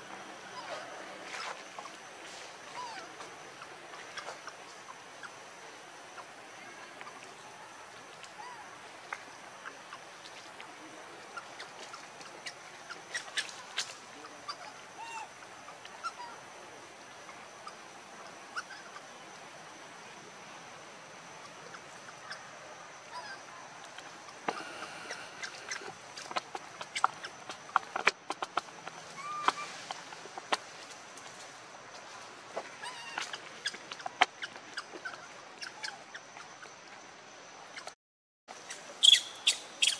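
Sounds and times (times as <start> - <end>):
short chirping calls: 21.6 - 28.2, 38.6 - 39.9.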